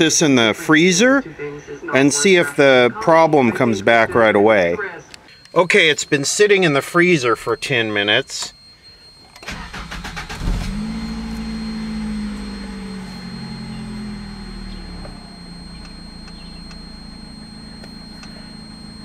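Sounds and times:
engine idling: 9.4 - 19.0
starter motor cranking: 9.4 - 19.0.

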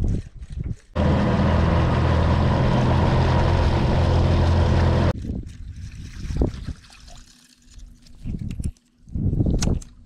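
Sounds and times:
boat motor running: 1.0 - 5.1.

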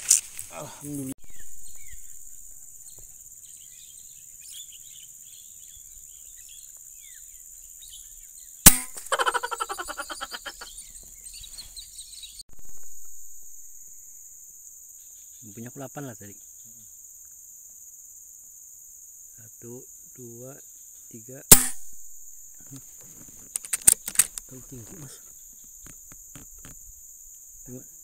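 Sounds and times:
high insect drone: 0.0 - 11.0, 12.5 - 28.0
bird chirps: 1.2 - 14.1
air rifle firing: 8.7 - 9.1, 21.5 - 22.2
fast pulsing calls: 9.0 - 10.8.

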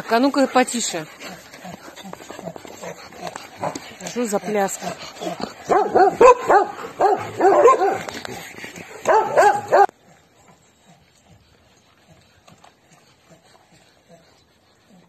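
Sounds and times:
dog eating from bowl: 0.3 - 9.9
dogs barking and yipping: 0.4 - 9.9.

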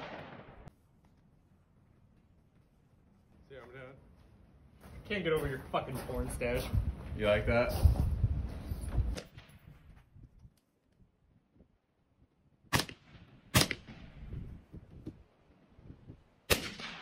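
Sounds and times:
rifle shots with echo: 0.0 - 0.7, 12.7 - 14.2, 16.5 - 17.0.

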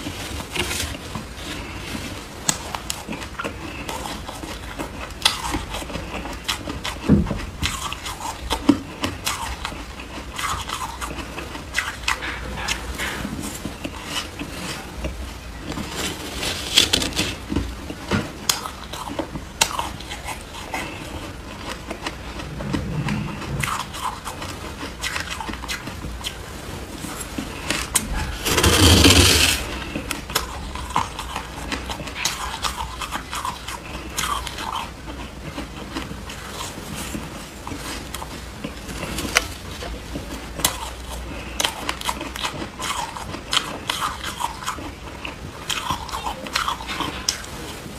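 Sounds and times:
chewing shaved ice: 0.0 - 47.9
metal spoon scraping ice: 28.3 - 29.8.

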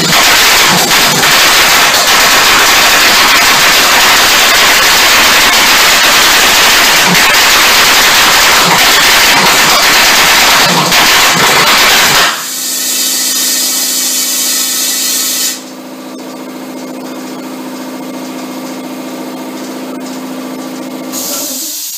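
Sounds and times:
pulse jet engine roaring: 0.0 - 12.4.

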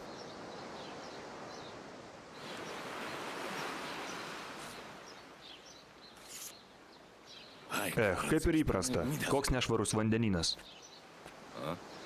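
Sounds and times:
ocean surf washing onto beach: 2.3 - 5.4.

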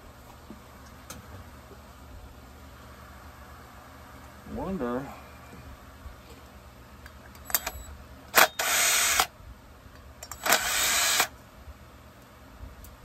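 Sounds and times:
cordless power tool bursts: 7.5 - 9.3, 10.2 - 11.3.

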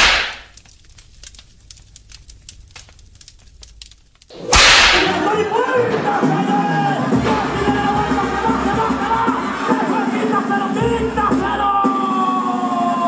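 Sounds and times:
faint crackling: 0.0 - 5.2
music: 4.4 - 13.0.

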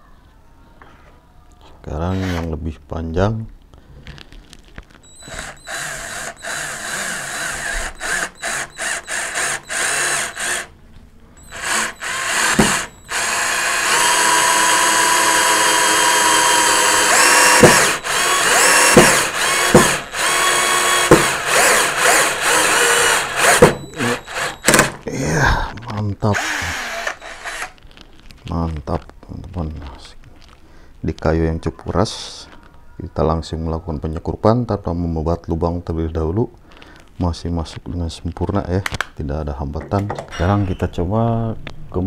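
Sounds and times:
cordless drill driving screw into wood: 5.1 - 10.7, 11.4 - 25.0, 26.4 - 27.8.

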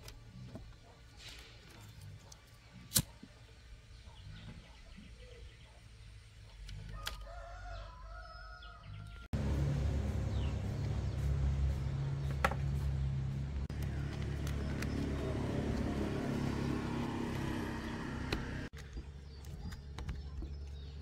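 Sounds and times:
rooster crowing: 6.9 - 9.3.

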